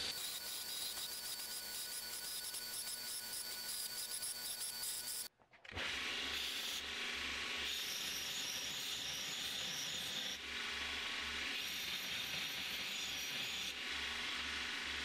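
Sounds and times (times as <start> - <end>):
belt grinder grinding steel: 0.0 - 5.3, 7.6 - 10.4, 11.5 - 13.8.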